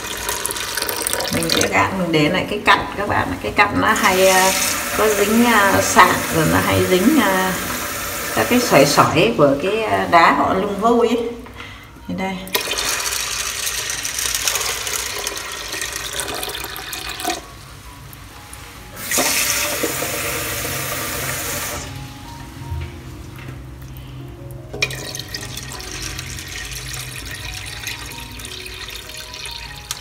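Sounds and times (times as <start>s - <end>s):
water pouring onto corn kernels: 0.0s - 1.7s, 12.6s - 17.5s, 24.8s - 30.0s.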